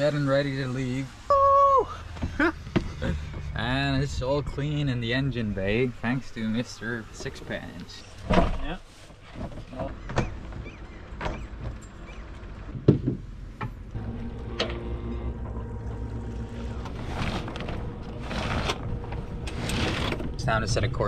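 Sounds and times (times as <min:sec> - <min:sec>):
outboard motor humming: 0:13.9 - 0:20.9.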